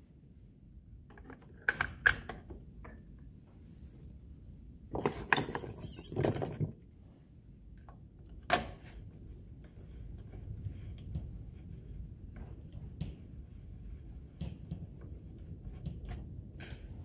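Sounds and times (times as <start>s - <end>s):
metal parts clinking: 5.1s - 6.6s.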